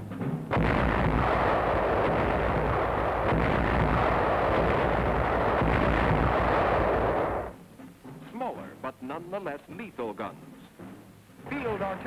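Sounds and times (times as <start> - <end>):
gun blast: 0.5 - 7.6
loud steady rumbling: 0.5 - 7.6.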